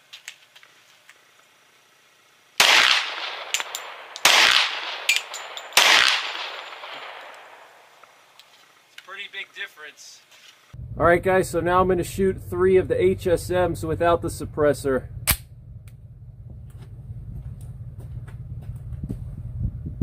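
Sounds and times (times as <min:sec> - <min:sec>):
gunshot echo: 0:02.6 - 0:07.9
pistol shots: 0:02.6 - 0:07.9.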